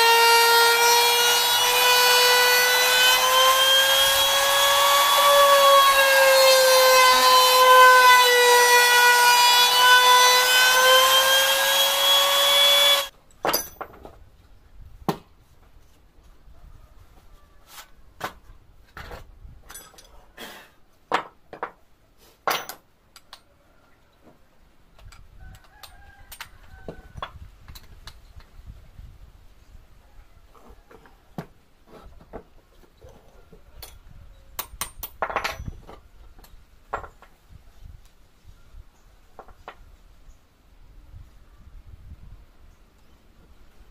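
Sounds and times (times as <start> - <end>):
router whining: 0.0 - 13.1
metal tools clicking and knocking: 13.3 - 14.1, 19.6 - 20.2, 34.6 - 37.3.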